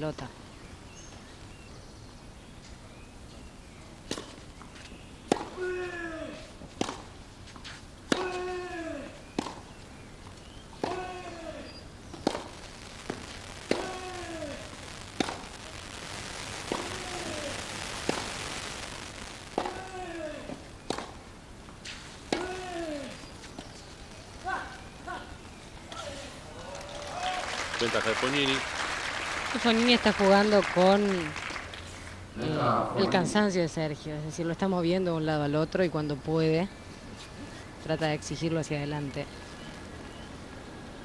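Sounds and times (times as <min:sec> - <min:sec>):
tennis ball struck in rally: 0:08.1 - 0:08.6, 0:10.8 - 0:11.4, 0:12.2 - 0:12.5, 0:15.2 - 0:15.4, 0:19.6 - 0:21.2, 0:22.3 - 0:23.1.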